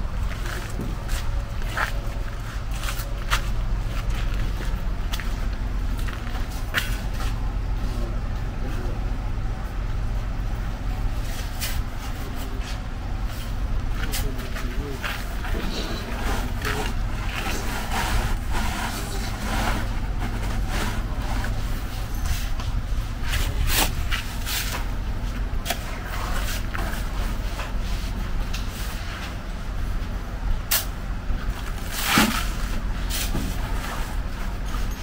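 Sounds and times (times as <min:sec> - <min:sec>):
low rumble: 0:00.0 - 0:27.7
metal shovel scraping sand: 0:31.8 - 0:33.3.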